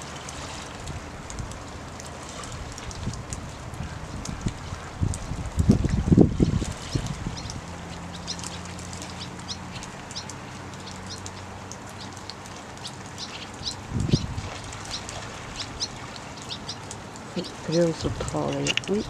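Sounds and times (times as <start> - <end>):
small birds chirping: 5.9 - 19.0.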